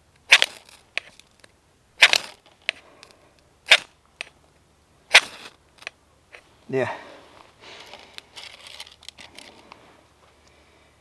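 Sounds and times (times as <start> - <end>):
rod scraping: 5.1 - 6.4.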